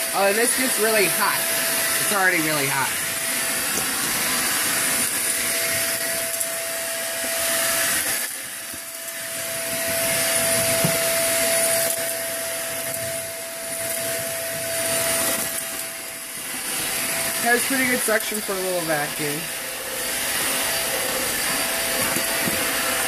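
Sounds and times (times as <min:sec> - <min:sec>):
stick vacuum cleaner running: 0:00.0 - 0:23.0.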